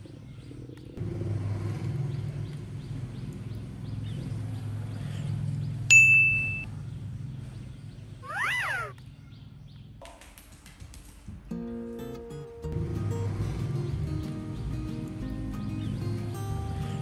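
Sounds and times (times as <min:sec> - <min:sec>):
sharp ding: 0:05.9 - 0:06.7
animal call rising and falling: 0:08.2 - 0:08.9.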